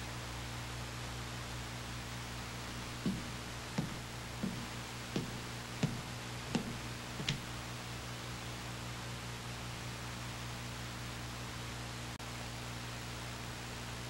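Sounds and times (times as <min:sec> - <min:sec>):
steady hiss and low hum: 0:00.0 - 0:14.0
hard-soled footsteps on hard floor: 0:02.7 - 0:07.6.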